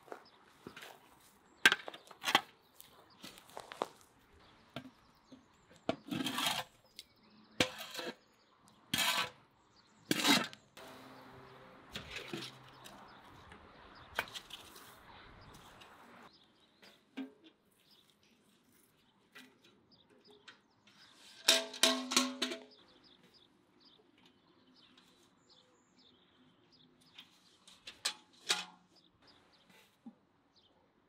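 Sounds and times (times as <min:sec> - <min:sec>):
shovels scraping: 0:06.0 - 0:06.8, 0:08.9 - 0:09.4, 0:11.9 - 0:13.0
metal shovels knocking: 0:21.3 - 0:22.8.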